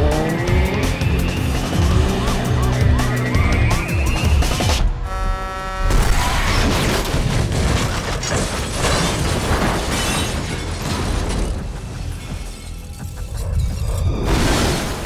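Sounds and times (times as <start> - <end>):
impacts and debris: 5.9 - 15.0.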